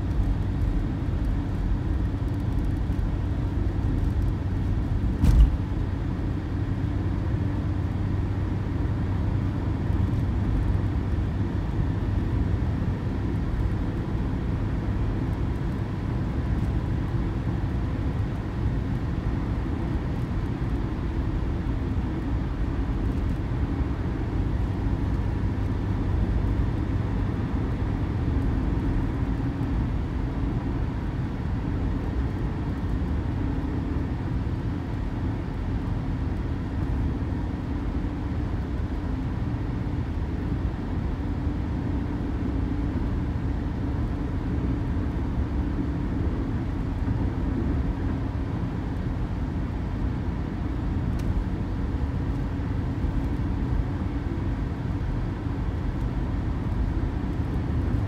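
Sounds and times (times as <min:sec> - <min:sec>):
car road and engine noise: 0:00.0 - 0:58.0
short thump: 0:05.2 - 0:05.6.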